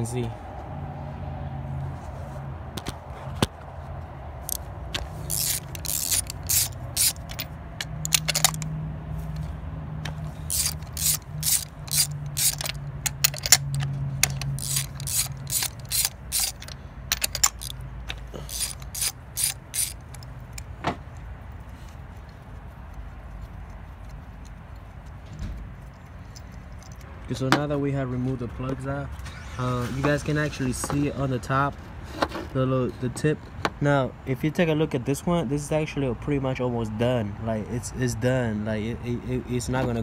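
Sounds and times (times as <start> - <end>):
socket ratchet clicking: 4.4 - 9.4, 10.0 - 21.3, 25.8 - 27.2.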